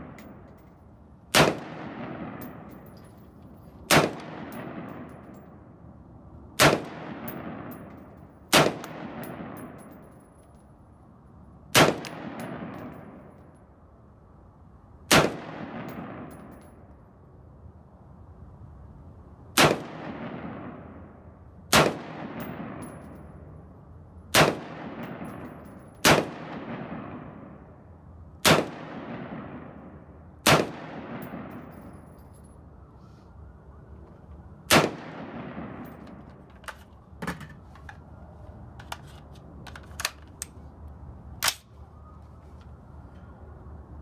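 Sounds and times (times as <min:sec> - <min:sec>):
rifle shots with echo: 0:01.3 - 0:02.9, 0:03.9 - 0:05.4, 0:06.6 - 0:10.0, 0:11.7 - 0:13.3, 0:15.1 - 0:16.6, 0:19.6 - 0:21.0, 0:21.7 - 0:23.1, 0:24.3 - 0:27.6, 0:28.4 - 0:32.1, 0:34.7 - 0:36.2.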